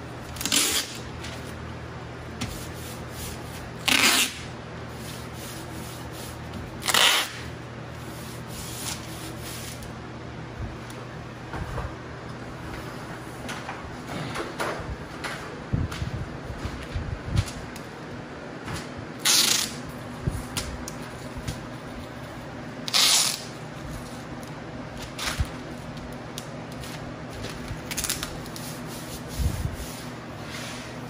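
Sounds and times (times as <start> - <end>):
hands rubbing tape on wall: 0.3 - 1.6, 2.3 - 9.9, 19.2 - 22.2, 22.9 - 24.5, 25.2 - 31.0
sticky tape ripping off roll: 0.4 - 1.0, 3.8 - 4.5, 6.8 - 7.5, 19.2 - 19.8, 22.8 - 23.6, 27.8 - 28.6.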